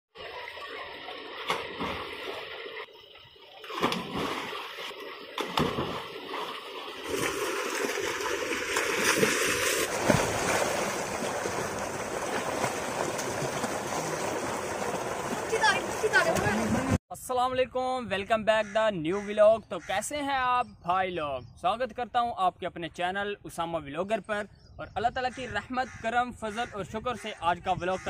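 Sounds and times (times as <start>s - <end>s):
people splashing in water: 0.2s - 2.9s, 3.6s - 17.0s
water gushing from pipe: 6.0s - 17.0s.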